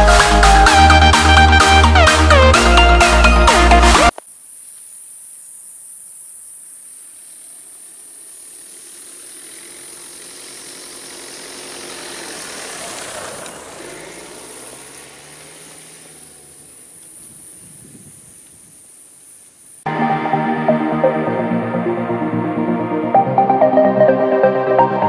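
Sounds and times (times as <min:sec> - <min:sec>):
steady high hiss: 0:04.0 - 0:21.6
van driving past on dirt track: 0:08.7 - 0:17.2.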